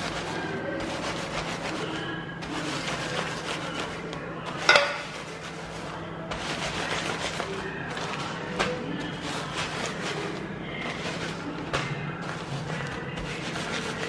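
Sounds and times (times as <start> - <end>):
rolling pin crushing biscuits in bag: 0.0 - 14.0.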